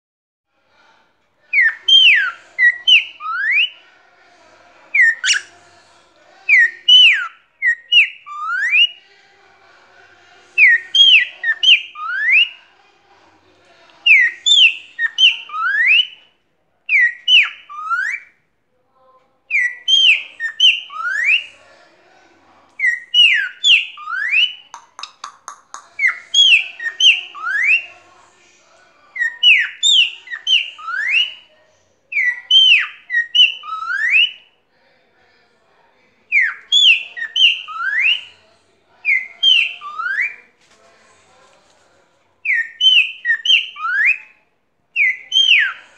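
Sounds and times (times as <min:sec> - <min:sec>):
cockatiel whistling: 0:05.0 - 0:05.5, 0:16.9 - 0:18.3, 0:19.5 - 0:21.5, 0:29.2 - 0:31.4, 0:32.2 - 0:34.4, 0:36.4 - 0:38.3, 0:39.1 - 0:40.4, 0:42.5 - 0:44.3, 0:45.0 - 0:45.8
bird clicks: 0:24.7 - 0:26.2.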